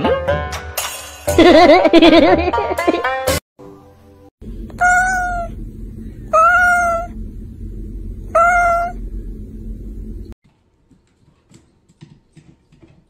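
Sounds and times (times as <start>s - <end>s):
steady low rumble: 4.4s - 10.4s
cat meowing: 4.7s - 5.6s, 6.3s - 7.2s, 8.3s - 9.0s.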